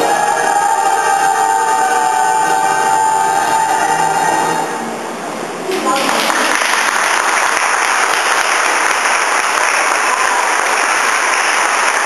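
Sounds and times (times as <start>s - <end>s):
crowd applauding: 5.7s - 12.0s.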